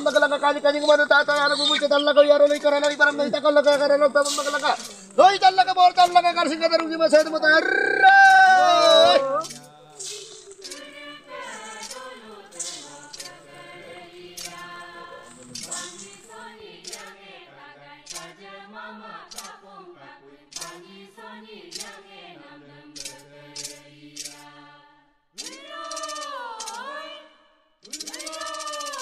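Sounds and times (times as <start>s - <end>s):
voices singing together: 0.0s - 29.0s
sharp clicks: 2.4s - 13.6s, 14.3s - 17.1s, 18.1s - 18.3s, 21.8s - 22.0s, 23.0s - 24.4s, 25.4s - 26.8s, 27.8s - 29.0s.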